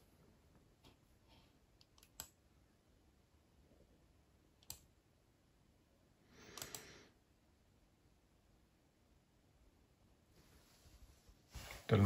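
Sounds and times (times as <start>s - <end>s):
faint clicks: 6.5s - 6.9s
short rustling: 10.4s - 12.0s.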